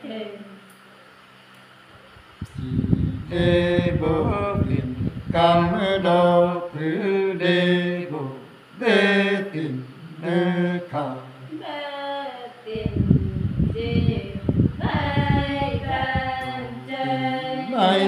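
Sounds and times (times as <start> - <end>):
man singing folk song: 3.2 - 11.2.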